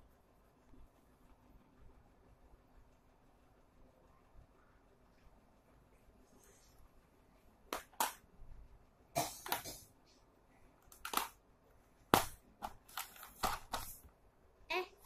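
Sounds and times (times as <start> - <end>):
pencils clicking on plastic case: 10.8 - 11.4, 12.2 - 14.0.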